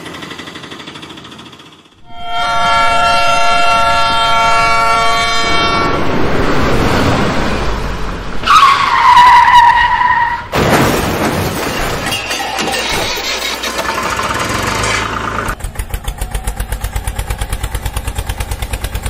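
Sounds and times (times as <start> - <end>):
toy horn blast: 2.0 - 6.0
falling squeal: 11.6 - 15.1
rushing engine-like noise: 12.6 - 19.0.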